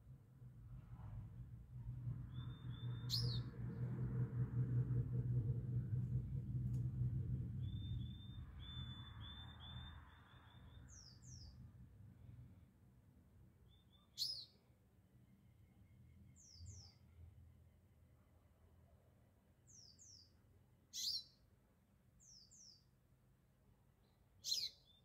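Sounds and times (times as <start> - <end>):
low rumble: 0.0 - 12.0
songbirds chirping: 1.8 - 4.1, 7.3 - 18.2, 19.4 - 25.0.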